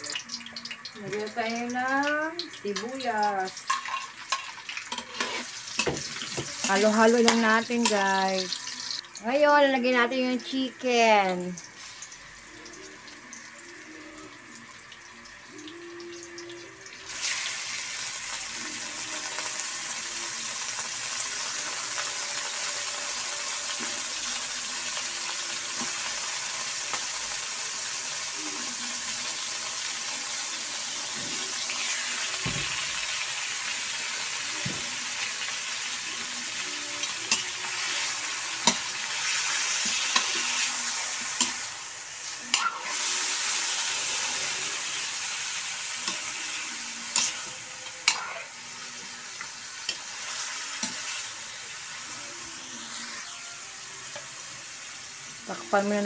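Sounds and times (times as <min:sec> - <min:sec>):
chicken sizzling in a pan: 0:00.0 - 0:56.0.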